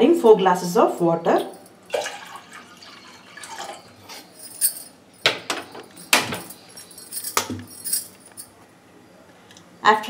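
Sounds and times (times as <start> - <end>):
water pouring into metal pot: 1.9 - 3.9
metal tumblers clinking: 3.5 - 8.5.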